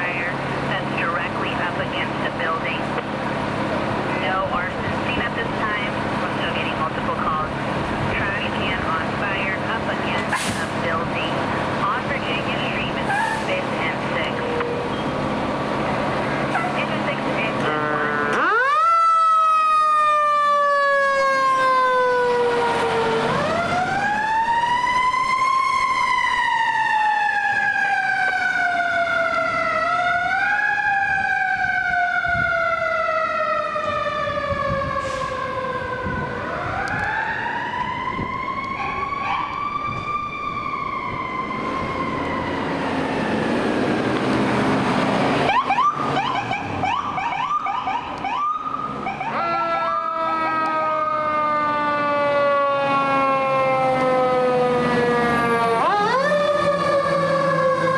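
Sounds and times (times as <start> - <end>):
fire truck siren wailing: 0.0 - 57.9
fast yelping siren: 17.8 - 43.4, 45.5 - 57.9.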